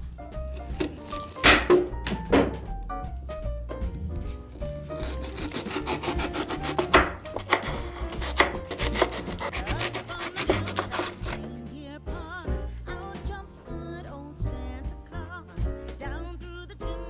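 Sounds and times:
background music: 0:00.0 - 0:17.0
knife cutting cucumber on board: 0:00.5 - 0:01.8, 0:04.6 - 0:11.5.

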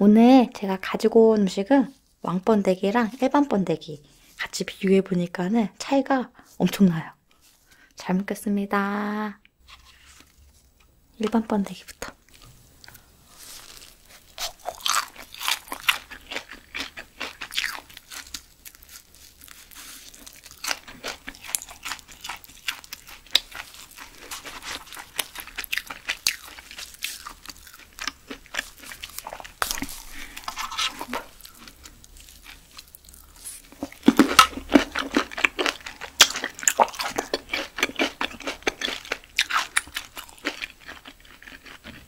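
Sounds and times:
crunchy chewing: 0:09.7 - 0:42.0.

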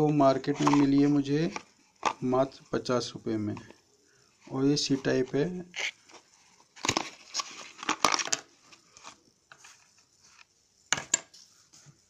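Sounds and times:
packaging crinkling: 0:00.4 - 0:02.3, 0:05.2 - 0:10.4.

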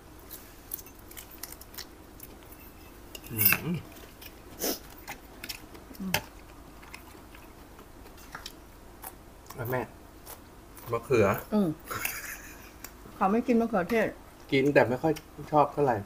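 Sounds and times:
chewing food: 0:00.3 - 0:11.5.

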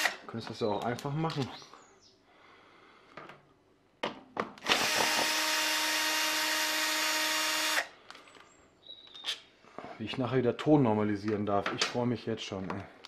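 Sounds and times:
cordless drill running: 0:04.6 - 0:08.0.

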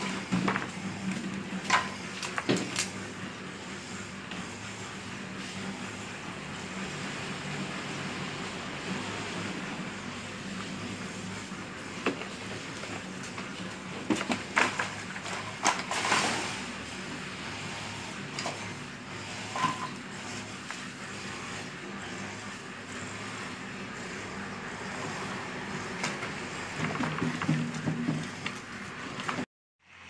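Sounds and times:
wheelbarrow clattering knocks: 0:26.8 - 0:28.5.

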